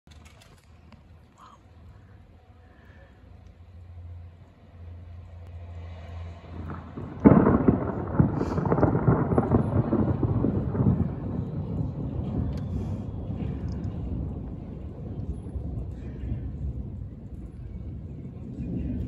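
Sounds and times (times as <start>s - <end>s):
thunder clap and rumble: 5.7s - 19.0s.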